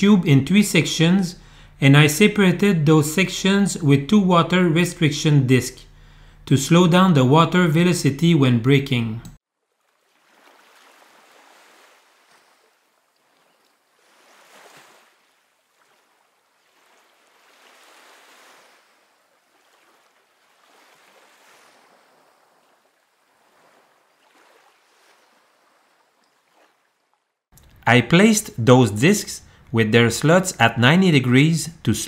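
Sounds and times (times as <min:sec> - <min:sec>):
water sloshing: 0:09.6 - 0:27.8.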